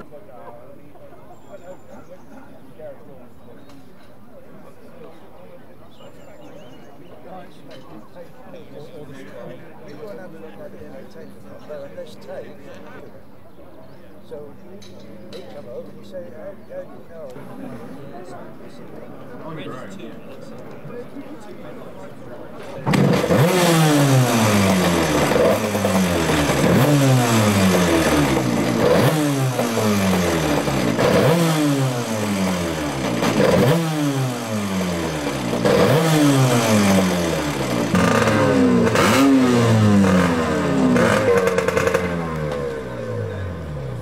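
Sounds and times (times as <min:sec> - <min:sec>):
boat engine revving: 0:22.8 - 0:44.0.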